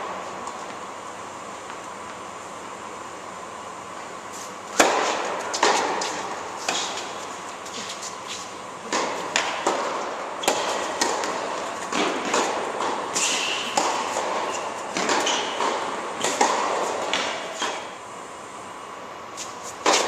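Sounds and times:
tennis ball bouncing on court: 0:04.7 - 0:07.9, 0:08.8 - 0:18.0
racket hitting tennis ball: 0:04.7 - 0:18.0, 0:19.5 - 0:20.0.

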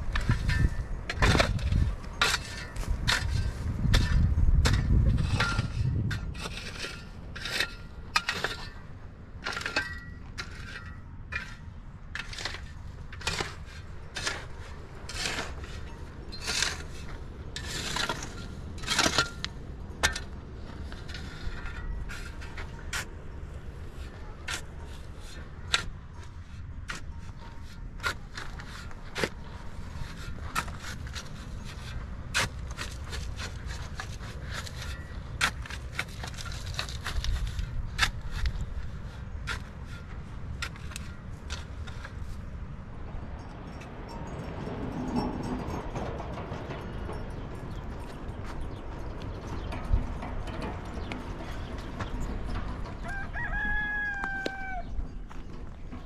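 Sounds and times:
shovel scraping dirt: 0:00.0 - 0:42.5.

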